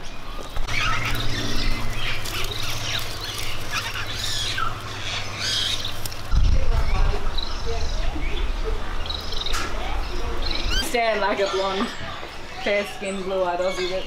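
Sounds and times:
birds chirping and squawking: 0:00.0 - 0:14.0
steady low hum: 0:00.0 - 0:14.0
low rumble: 0:00.6 - 0:10.8.

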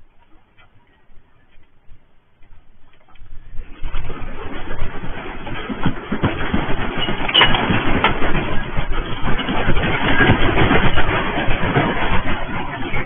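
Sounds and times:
earthquake rumble: 0:00.0 - 0:13.0
building rattling and clattering: 0:00.1 - 0:13.0.

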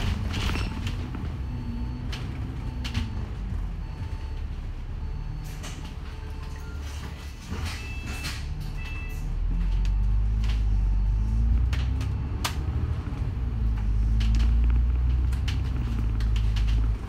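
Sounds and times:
rattles and clicks from bus body: 0:00.0 - 0:04.6, 0:05.3 - 0:10.8, 0:11.5 - 0:17.0
bus engine accelerating: 0:00.0 - 0:17.0
brief beeps: 0:05.0 - 0:11.4.

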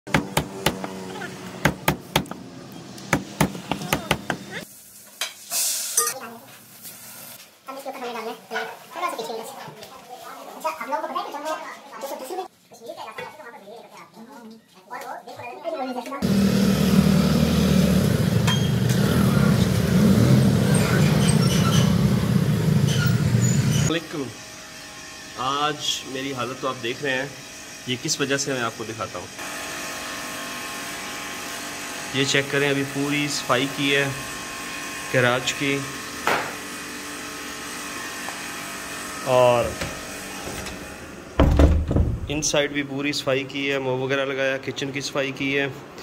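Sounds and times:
blade chopping on a block: 0:00.1 - 0:01.0
road and wind noise: 0:16.2 - 0:23.9
vehicle engine rumble: 0:16.2 - 0:23.9.

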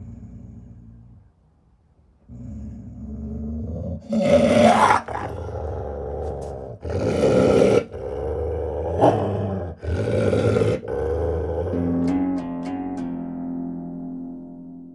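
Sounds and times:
dog growling deeply: 0:00.0 - 0:01.3, 0:02.3 - 0:12.1
dog snarling: 0:04.0 - 0:08.2
plucked musical notes: 0:11.2 - 0:14.9.

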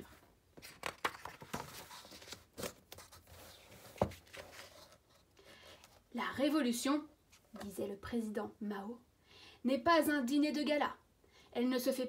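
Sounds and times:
pages turning: 0:00.6 - 0:06.0.

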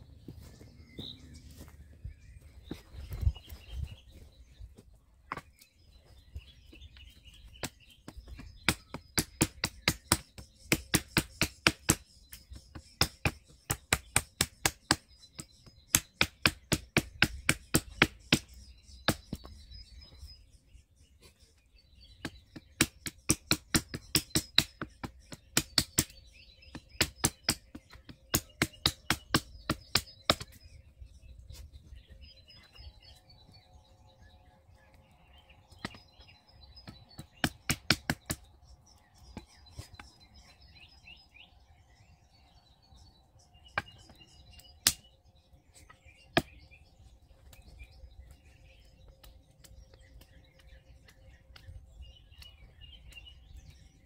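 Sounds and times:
birds chirping faintly: 0:00.0 - 0:54.0
wooden knocks of chopping kindling: 0:07.4 - 0:19.6, 0:22.2 - 0:30.6, 0:35.7 - 0:36.2, 0:36.8 - 0:38.5.

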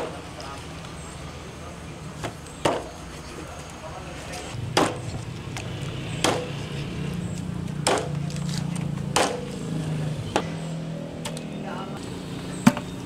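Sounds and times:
chopping on a wooden board: 0:04.8 - 0:05.0, 0:06.2 - 0:06.5, 0:07.8 - 0:08.2, 0:09.1 - 0:09.4.

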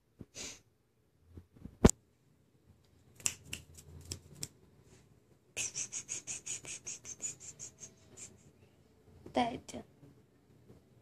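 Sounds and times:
finger clicks: 0:03.2 - 0:04.5.

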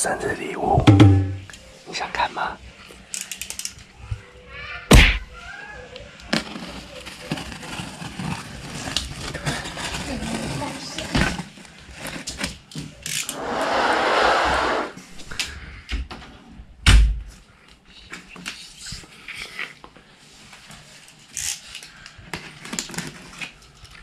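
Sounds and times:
heavy thump: 0:04.9 - 0:05.3
long hissing rush: 0:13.3 - 0:15.0.

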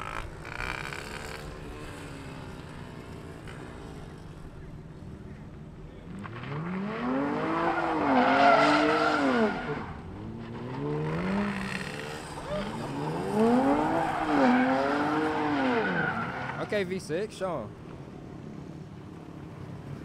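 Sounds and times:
tire squeal: 0:00.0 - 0:03.8, 0:06.1 - 0:16.9
car engine revving hard: 0:06.2 - 0:16.6.

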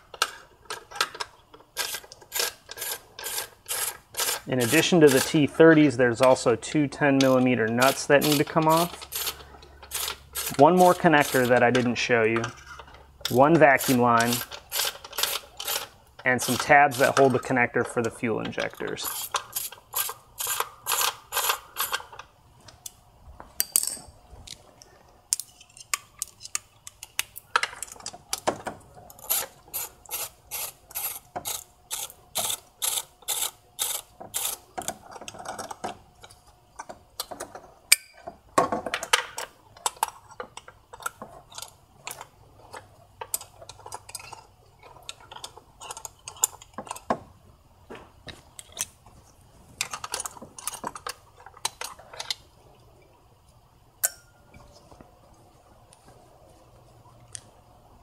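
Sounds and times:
hand ratchet clicking: 0:01.8 - 0:05.4, 0:13.3 - 0:17.4, 0:19.0 - 0:22.1, 0:29.2 - 0:35.6.

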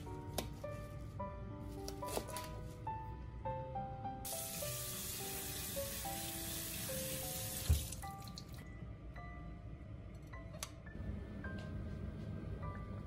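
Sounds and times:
tap water running into sink: 0:04.3 - 0:08.5.

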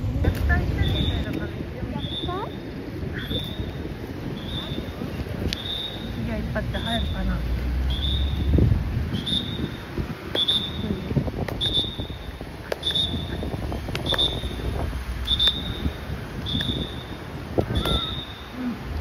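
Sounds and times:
whistle short blasts: 0:03.2 - 0:03.7, 0:04.4 - 0:04.9, 0:05.5 - 0:06.2, 0:07.9 - 0:08.5, 0:09.1 - 0:10.9, 0:11.6 - 0:13.4, 0:14.0 - 0:14.6, 0:15.2 - 0:18.6.

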